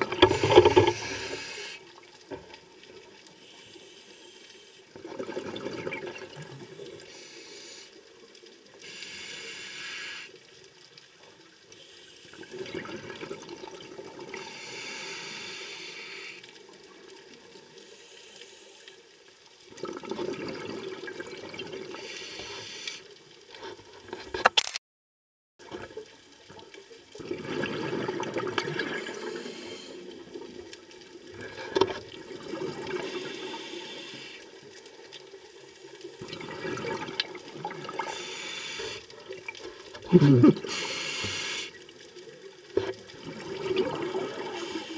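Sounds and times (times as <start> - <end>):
scuba regulator hissing inhales: 0.3 - 1.8, 3.4 - 4.9, 7.1 - 8.0, 8.8 - 10.4, 14.4 - 16.5, 22.0 - 23.1, 29.0 - 30.1, 33.0 - 34.5, 38.0 - 39.1, 40.6 - 41.8, 44.5 - 44.9
exhaled bubbles rushing: 5.0 - 6.5, 27.2 - 29.4, 32.2 - 33.0, 36.2 - 38.1, 43.1 - 44.8.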